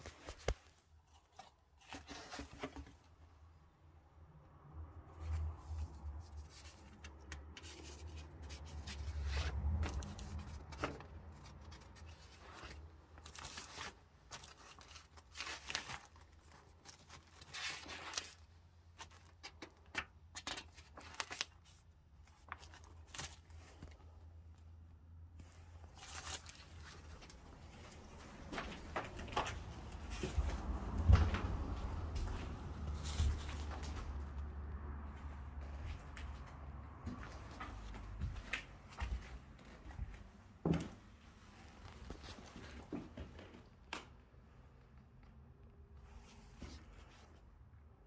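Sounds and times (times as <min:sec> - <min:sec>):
crunches scrapes and rustles: 0:00.0 - 0:03.2
low rumble of phone handling: 0:25.4 - 0:39.0.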